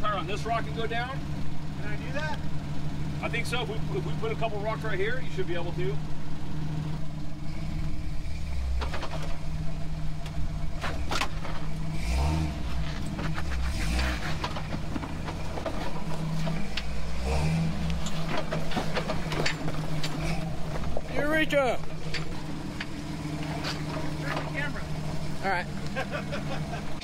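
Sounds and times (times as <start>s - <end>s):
off-road vehicle engine crawling: 0.0s - 27.0s
tyres knocking and scraping on rock: 12.8s - 16.8s, 17.9s - 21.2s.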